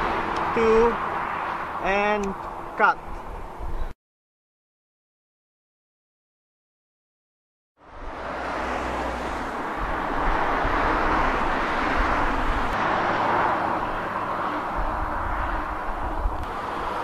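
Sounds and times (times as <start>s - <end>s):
wind buffeting microphone: 0.0s - 4.0s, 9.2s - 17.0s.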